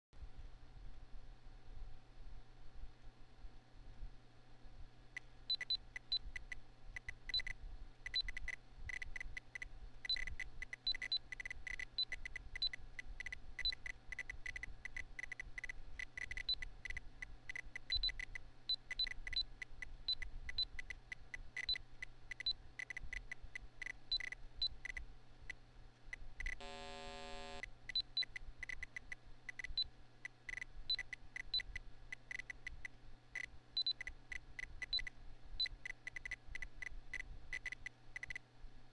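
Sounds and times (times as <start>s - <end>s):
computer fan hum: 0.2s - 38.9s
low buzzy long beep: 26.6s - 27.6s.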